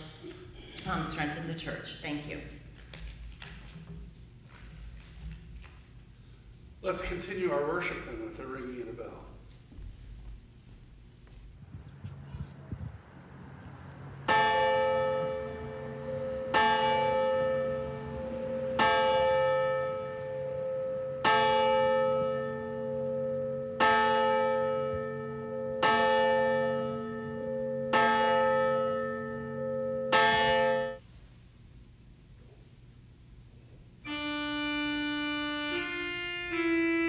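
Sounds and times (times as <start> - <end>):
church bell tolling: 13.5 - 31.0.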